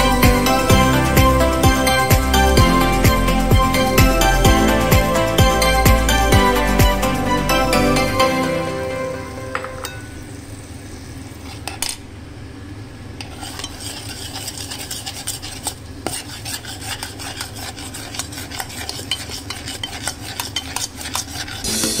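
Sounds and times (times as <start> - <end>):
spoon clicking and scraping pot: 13.2 - 21.6
spoon stirring thick paste: 13.2 - 21.7.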